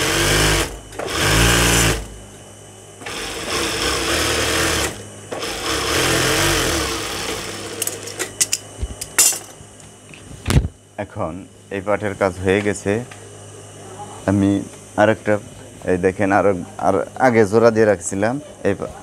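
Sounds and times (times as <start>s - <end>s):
sewing machine stitching: 0.0s - 2.1s, 3.0s - 8.1s.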